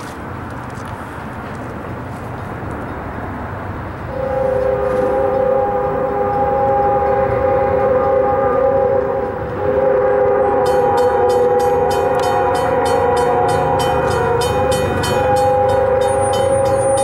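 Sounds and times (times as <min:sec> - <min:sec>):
locomotive air horn: 0:04.1 - 0:17.0
railroad crossing bell ringing: 0:04.1 - 0:17.0.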